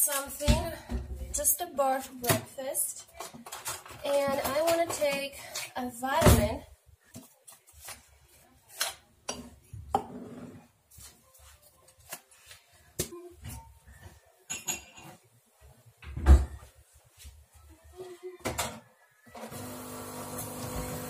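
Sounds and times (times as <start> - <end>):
kitchen items clicking and tapping: 2.0 - 6.5, 8.7 - 10.2, 13.0 - 15.3.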